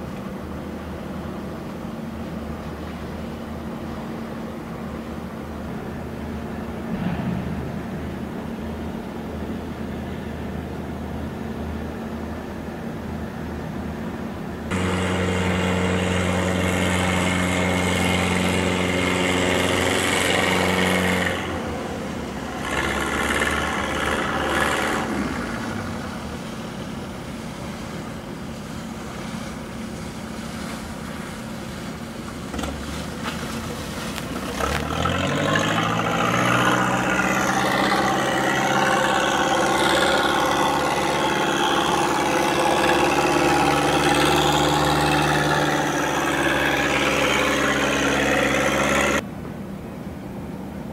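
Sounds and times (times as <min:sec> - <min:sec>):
boat engines running: 0:00.0 - 0:49.2
boat engine speeding up: 0:14.6 - 0:49.2.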